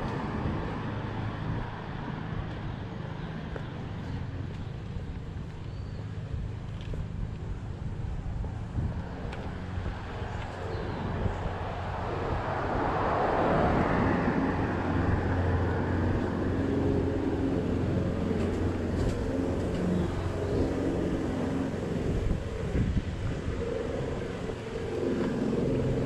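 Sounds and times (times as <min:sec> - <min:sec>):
steady engine hum: 0:00.0 - 0:26.0
car passing: 0:07.5 - 0:26.0.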